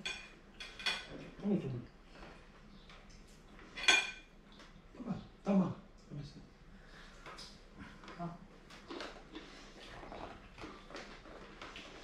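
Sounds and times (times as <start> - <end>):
forks clinking against plates: 0.0 - 1.1, 3.8 - 4.3.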